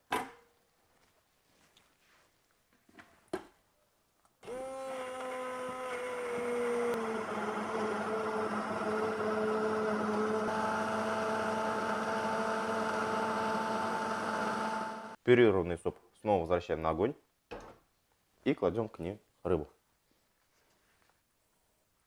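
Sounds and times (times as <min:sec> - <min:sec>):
immersion blender running: 0:04.4 - 0:15.2.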